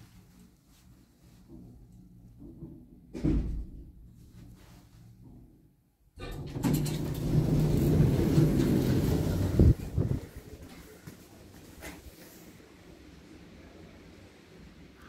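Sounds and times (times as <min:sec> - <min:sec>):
lift running rumble: 0:06.2 - 0:12.0.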